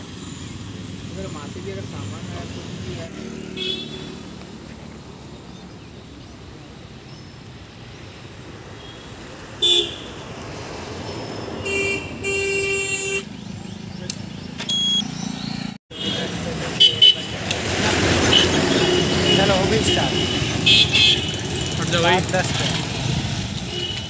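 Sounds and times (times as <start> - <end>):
steady traffic noise: 0.0 - 24.0
vehicle horns honking: 3.5 - 4.3, 8.8 - 10.2, 11.6 - 13.3, 15.9 - 17.5, 18.1 - 22.9, 23.6 - 24.0.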